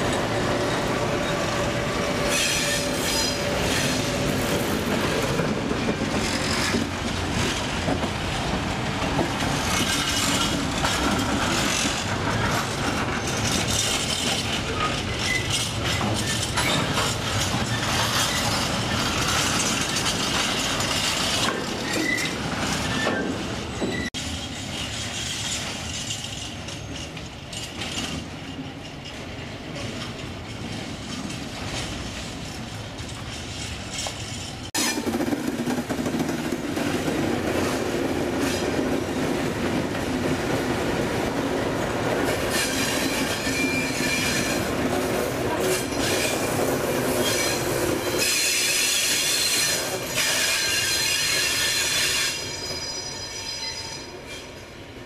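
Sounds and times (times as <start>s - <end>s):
train wheels squealing: 0.0s - 4.6s, 9.6s - 29.0s, 42.4s - 54.7s
diesel locomotive engine: 0.0s - 55.0s.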